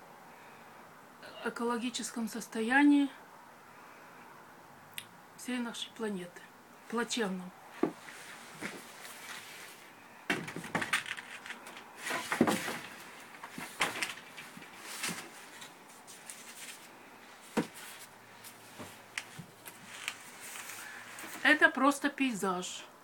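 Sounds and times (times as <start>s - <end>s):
rustling: 7.7s - 21.6s
canvases knocking and scraping: 7.8s - 21.5s.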